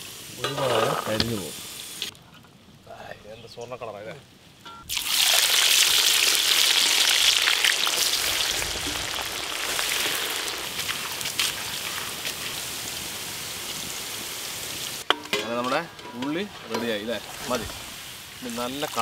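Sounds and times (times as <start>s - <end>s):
onions sizzling in hot oil: 0.0s - 2.1s, 4.9s - 19.0s
oil crackling: 4.9s - 19.0s.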